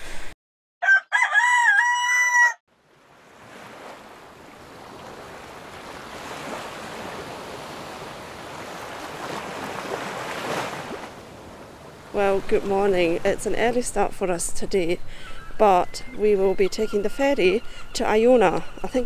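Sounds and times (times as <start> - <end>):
rooster crowing: 0.8 - 2.6.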